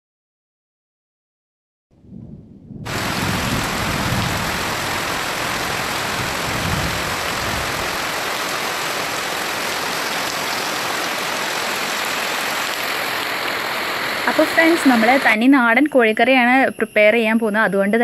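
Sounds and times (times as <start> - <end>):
low rumble: 2.0 - 7.8
heavy rain on earth and puddles: 2.8 - 15.4.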